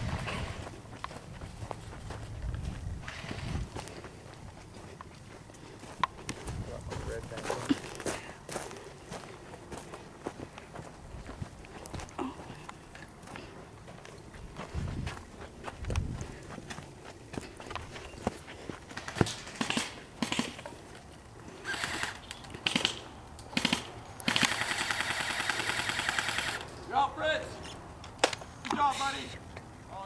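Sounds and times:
footsteps through dry brush: 0:00.0 - 0:23.1
airsoft gun firing full auto: 0:19.0 - 0:20.6, 0:21.6 - 0:26.6.

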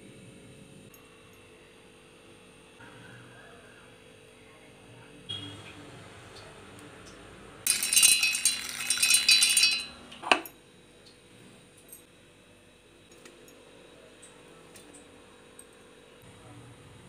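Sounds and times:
steel jar rattling with grains: 0:07.7 - 0:10.1
mixer grinder running: 0:07.7 - 0:10.5.

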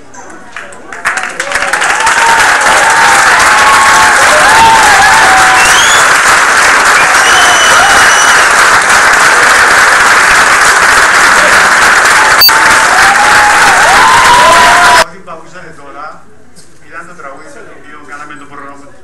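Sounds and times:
audience applauding: 0:00.5 - 0:15.1.

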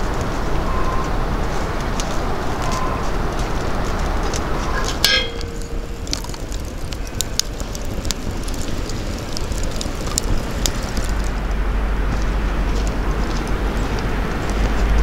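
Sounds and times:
fire crackling and popping: 0:00.0 - 0:15.0
low fire rumble: 0:00.0 - 0:15.0
ringing metal clink: 0:05.0 - 0:05.9.

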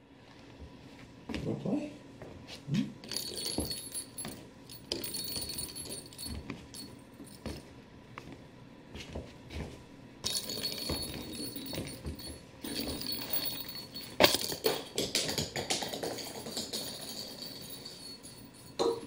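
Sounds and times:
metallic jingling and rattling: 0:03.0 - 0:07.6, 0:10.2 - 0:19.0.

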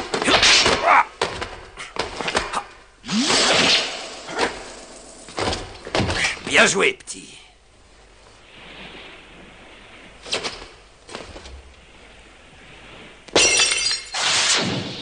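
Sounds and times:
glass shattering: 0:13.4 - 0:14.4.

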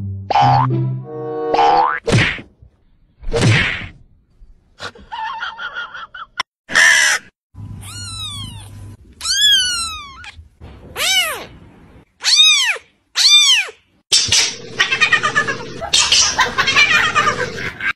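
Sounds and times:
kitten mewing: 0:07.8 - 0:10.4, 0:11.0 - 0:11.5, 0:12.2 - 0:13.8.

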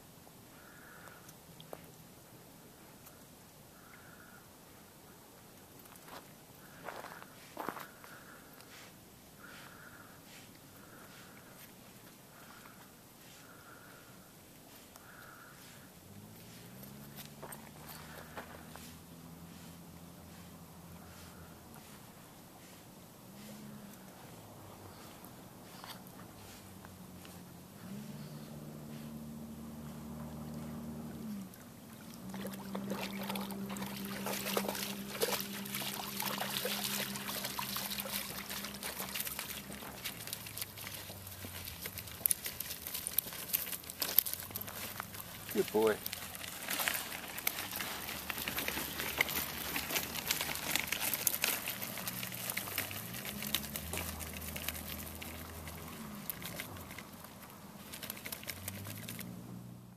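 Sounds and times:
gravel crunching under steps: 0:05.4 - 0:59.8
wheels crunching on gravel: 0:05.6 - 0:59.9
low motor hum: 0:23.2 - 0:59.9
dog splashing through water: 0:28.6 - 0:59.4.

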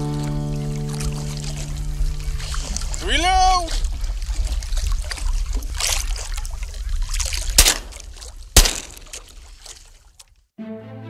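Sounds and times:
choppy water: 0:00.0 - 0:10.5
wind: 0:00.0 - 0:10.5
shotgun shots: 0:07.6 - 0:09.2.

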